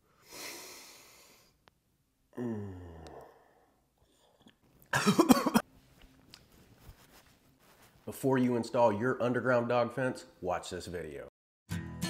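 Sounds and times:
man exhaling breathily: 0.2s - 1.6s, 2.4s - 4.3s
man sighing: 2.3s - 4.5s.

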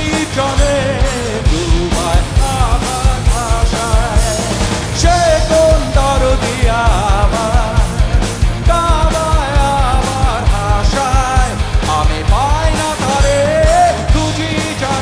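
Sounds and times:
rock band playing: 0.0s - 15.0s.

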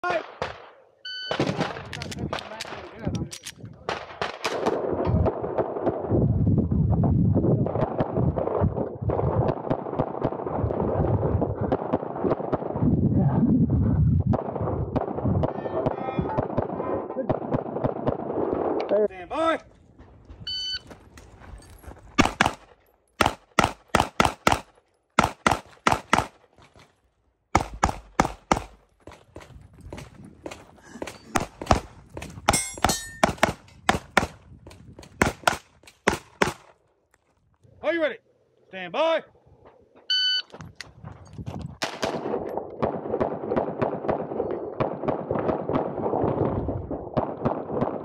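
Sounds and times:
pistol firing rapid shots: 3.9s - 6.0s, 22.2s - 26.4s, 27.5s - 28.8s, 30.4s - 34.4s, 35.2s - 36.6s.

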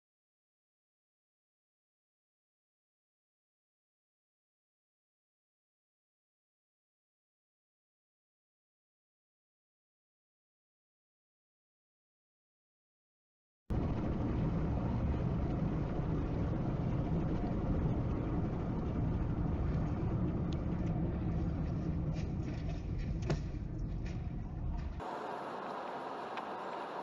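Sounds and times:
hissy road noise in rain: 13.7s - 22.7s, 25.0s - 27.0s
car road noise rumble: 13.7s - 27.0s.

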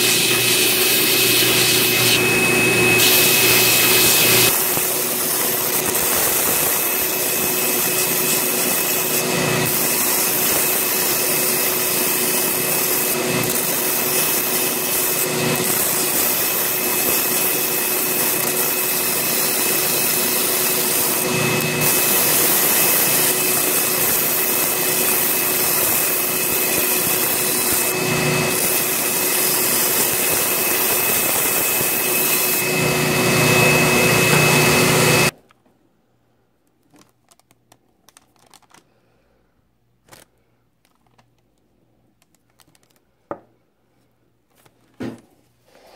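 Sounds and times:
power sander motor whine: 0.0s - 35.3s
sander grinding bone: 0.0s - 35.4s.

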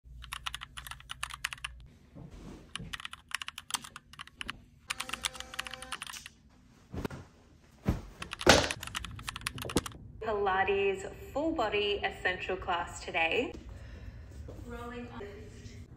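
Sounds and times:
keyboard typing clicks: 0.2s - 1.8s, 2.9s - 6.3s, 8.2s - 10.0s.

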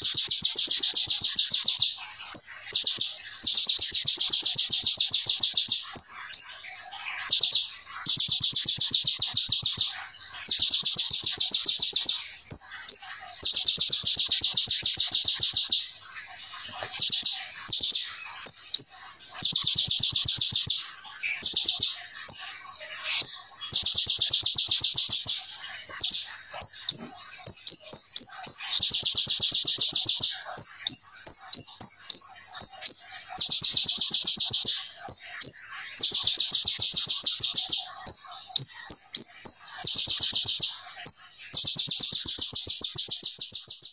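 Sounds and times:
bird chirping: 0.0s - 43.9s
bird singing high trills: 0.0s - 43.9s.

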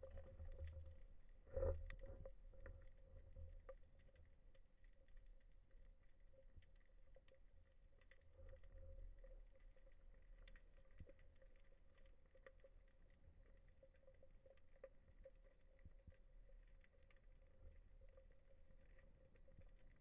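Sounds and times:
low underwater rumble: 0.0s - 20.0s.

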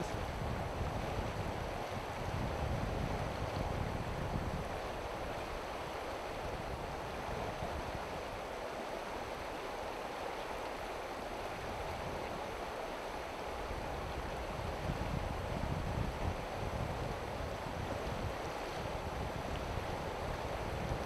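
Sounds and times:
river water rushing over rocks: 3.3s - 14.8s.

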